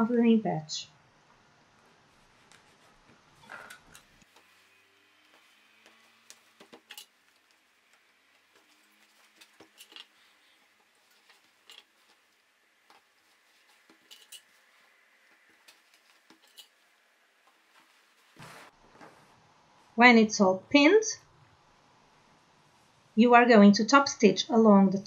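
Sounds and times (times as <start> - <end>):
clicks and rustles of denim: 2.2 - 19.3.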